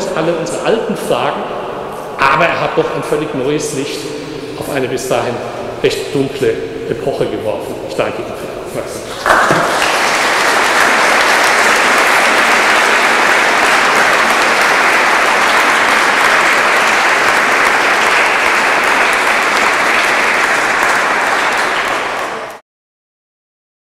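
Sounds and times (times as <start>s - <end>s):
audience applauding: 9.1s - 22.6s.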